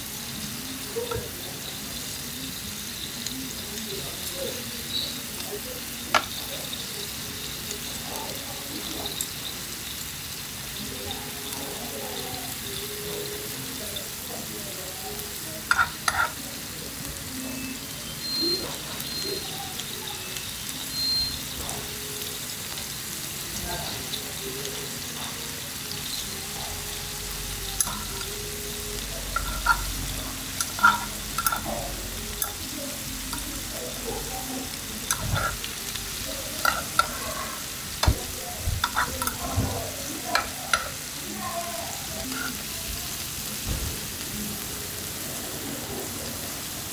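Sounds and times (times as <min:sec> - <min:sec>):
food sizzling on a hot griddle: 0:00.0 - 0:46.9
metal tongs scraping a pan: 0:15.6 - 0:16.5, 0:27.7 - 0:28.6, 0:29.2 - 0:41.2, 0:42.0 - 0:42.8.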